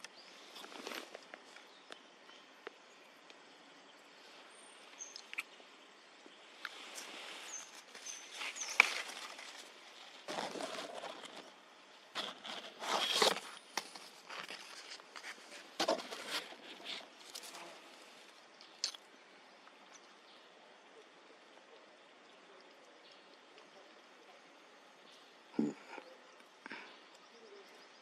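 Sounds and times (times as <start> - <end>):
rustling and crunching: 0.0 - 1.7, 6.6 - 19.0.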